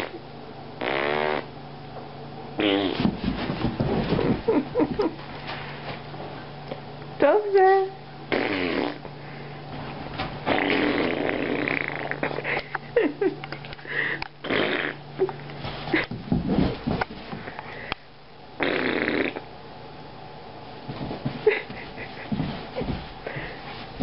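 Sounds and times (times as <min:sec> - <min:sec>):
dog snorting grunts: 0:10.4 - 0:12.5.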